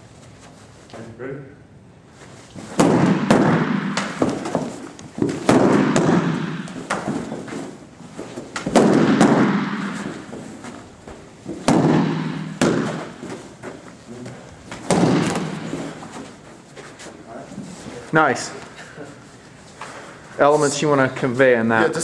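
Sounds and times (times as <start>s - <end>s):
baton striking padded shield: 2.6s - 10.5s, 11.5s - 13.5s, 14.7s - 16.2s.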